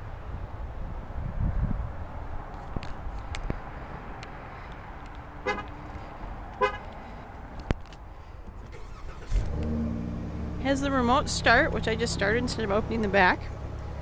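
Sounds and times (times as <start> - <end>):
car horn chirps: 5.4 - 5.7, 6.6 - 6.9
car engine starting and idling: 5.4 - 14.0.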